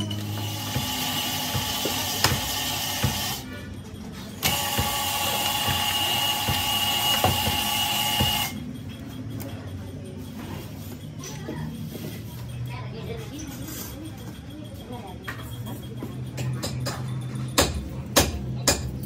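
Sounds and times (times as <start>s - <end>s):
boring machine motor whine: 4.4s - 8.6s.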